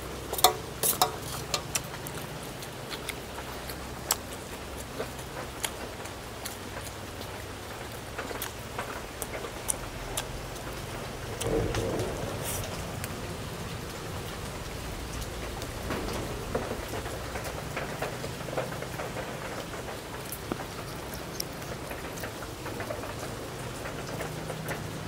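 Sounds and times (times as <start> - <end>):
crab shells being handled: 0.2 - 6.0
utensils clinking against dishes: 0.3 - 2.0.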